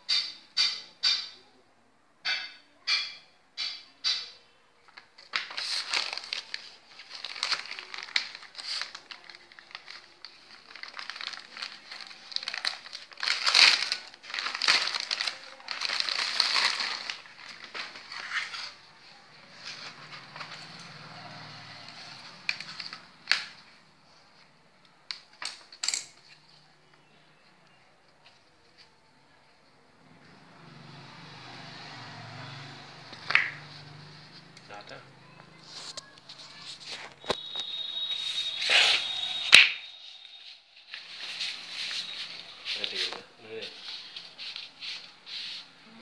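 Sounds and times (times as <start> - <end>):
plastic wrapping crinkling: 4.9 - 23.8, 32.4 - 45.8.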